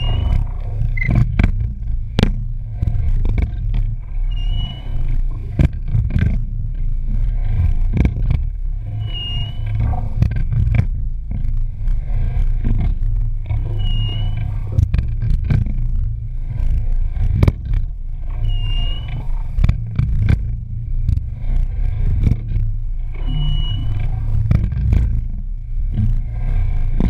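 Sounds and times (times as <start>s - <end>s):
short high squeak: 0.0s - 1.2s, 4.2s - 5.1s, 8.9s - 9.8s, 13.7s - 14.5s, 18.4s - 19.3s, 23.2s - 24.2s
rush of wind and water: 0.0s - 27.0s.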